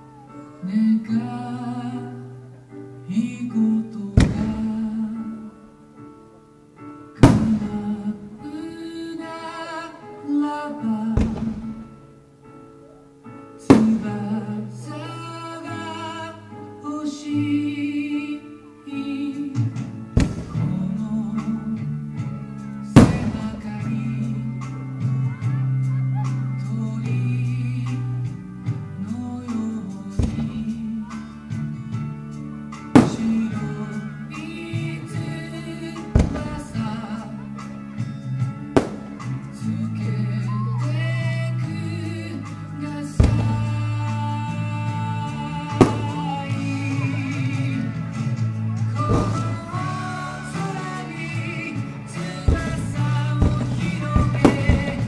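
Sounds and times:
music with singing voice: 0.0 - 55.0
firework bangs: 4.2 - 5.1, 7.2 - 8.3, 11.2 - 12.1, 13.7 - 14.4, 19.8 - 21.6, 22.9 - 24.3, 30.2 - 31.2, 32.8 - 35.4, 36.0 - 37.7, 38.7 - 39.7, 43.2 - 47.6, 49.0 - 55.0
firework shell bursts: 7.2 - 8.0, 13.7 - 14.2, 20.1 - 21.0, 23.0 - 23.9, 32.8 - 33.8, 36.1 - 37.2, 38.8 - 39.5, 45.7 - 46.2, 49.0 - 49.9, 52.4 - 55.0.

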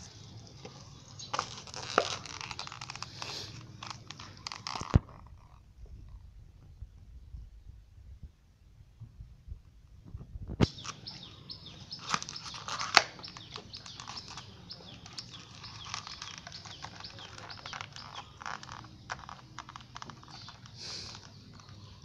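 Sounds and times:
dog chewing plastic packaging: 1.2 - 5.3, 12.0 - 21.8.

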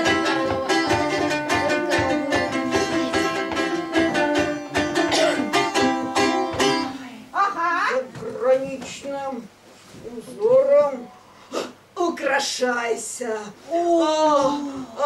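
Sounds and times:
plucked string instrument: 0.0 - 7.1.

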